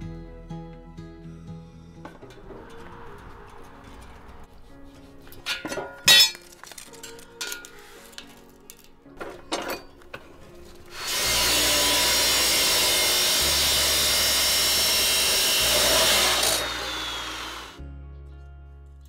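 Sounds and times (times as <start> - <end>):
chop saw cutting steel: 10.9 - 17.8
saw blade winding down whine: 11.0 - 17.8.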